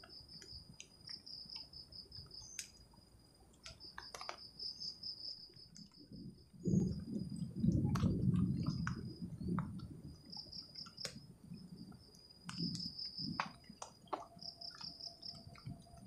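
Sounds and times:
light ticks: 0.0s - 2.8s, 3.5s - 6.1s, 7.9s - 11.2s, 12.1s - 16.0s
crickets chirping: 0.0s - 16.0s.

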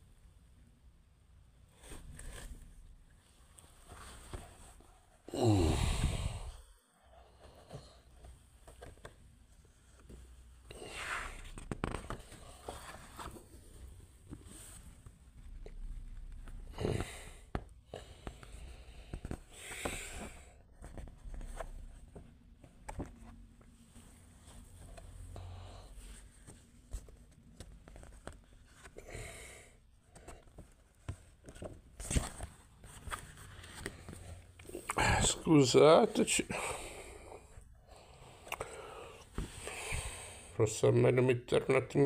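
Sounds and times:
book rustling and rubbing: 1.8s - 2.7s, 10.9s - 16.6s, 30.1s - 35.6s
book pages rustling: 1.8s - 5.2s, 7.4s - 25.3s, 25.9s - 29.0s, 30.0s - 36.6s.

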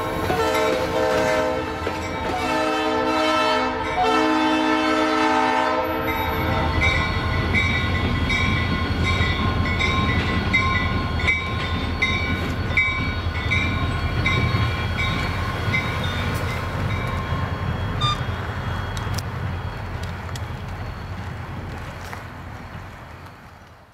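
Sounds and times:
locomotive air horn: 0.0s - 7.0s
train rumbling: 0.0s - 23.9s.

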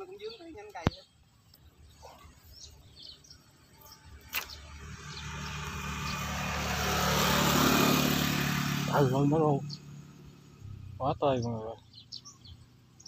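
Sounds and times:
sharp click: 4.3s - 4.6s
vehicle engine running: 4.4s - 13.0s.

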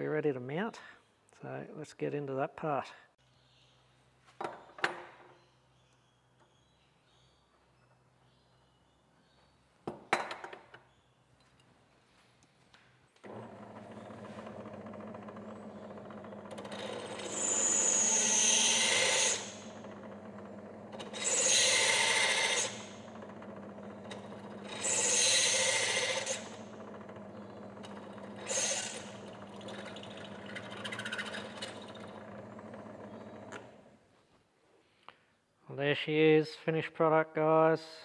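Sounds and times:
drill press cutting metal: 13.3s - 33.8s.

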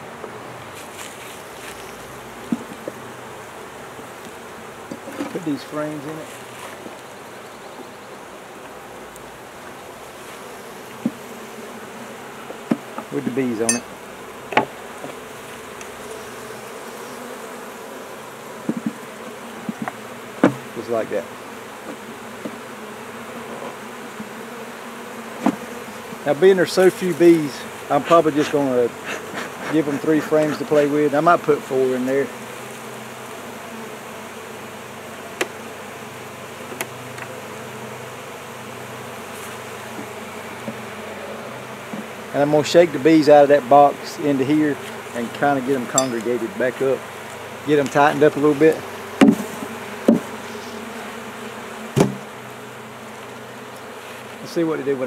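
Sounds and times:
bees buzzing: 0.0s - 55.0s
wooden knocks: 19.7s - 20.7s.

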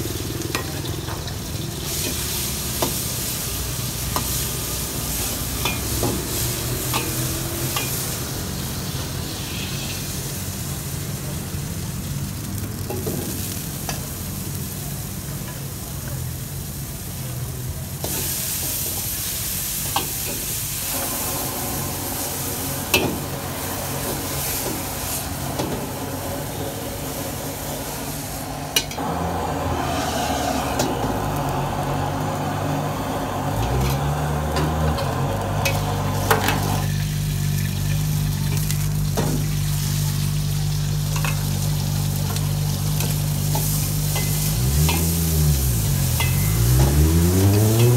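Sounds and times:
food sizzling in a wok: 0.0s - 47.9s
metal ladle scraping wok: 43.0s - 47.9s.

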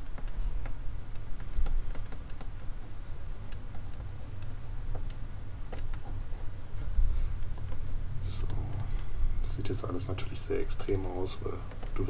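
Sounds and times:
computer mouse clicks: 0.0s - 2.7s, 3.5s - 6.2s, 7.4s - 7.8s, 8.4s - 9.1s
keyboard typing: 0.0s - 6.2s, 11.6s - 12.0s
steady low hum: 0.0s - 12.0s.

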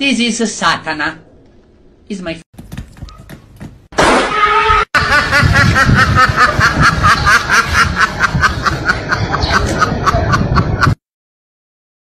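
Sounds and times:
person laughing hard: 5.0s - 11.0s.

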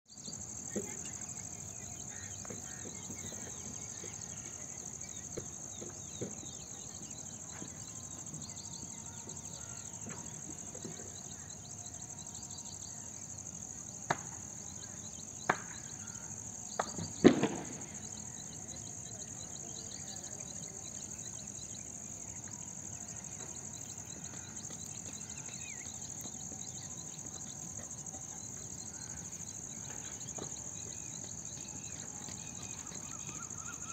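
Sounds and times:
insects chirring: 0.1s - 33.9s.

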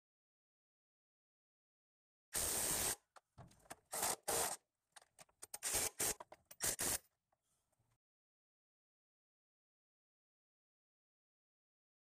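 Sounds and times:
cordless drill motor bursts: 3.9s - 4.6s, 5.6s - 7.0s.

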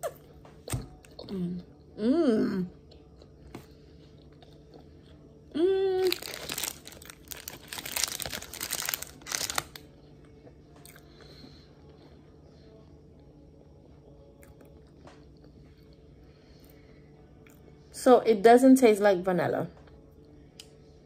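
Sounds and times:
person humming: 1.2s - 2.8s, 5.5s - 6.4s
plastic wrapper crinkling: 6.0s - 9.8s.

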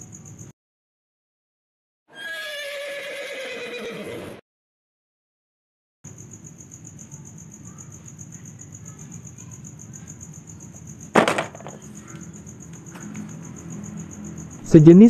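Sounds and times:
insects chirping: 0.0s - 0.5s, 6.1s - 15.0s
plastic toy clattering into basket: 11.2s - 11.9s.

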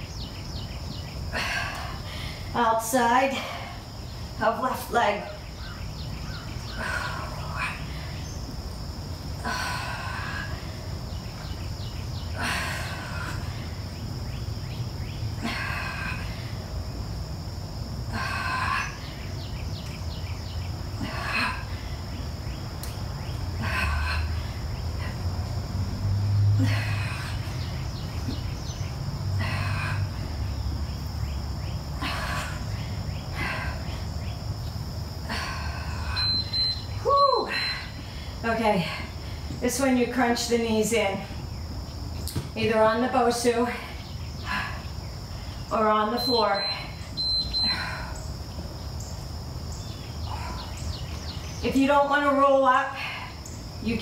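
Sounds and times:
insects chirring: 0.0s - 54.0s
woman exhaling breathily: 15.4s - 16.6s, 26.5s - 27.8s, 29.4s - 30.3s, 35.2s - 36.3s, 47.6s - 48.3s
woman exhaling forcefully: 26.5s - 27.7s.

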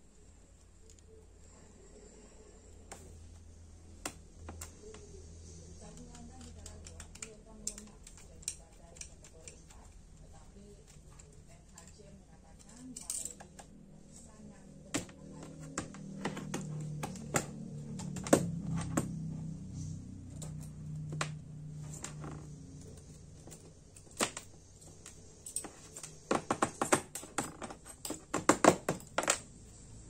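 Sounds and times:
small metal clicks and taps: 5.8s - 13.7s.

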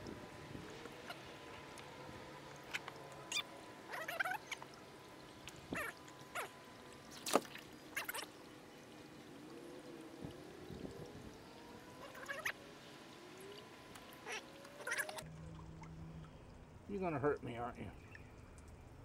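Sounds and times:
water trickling: 0.0s - 19.0s
fish splashing in water: 2.5s - 8.5s.

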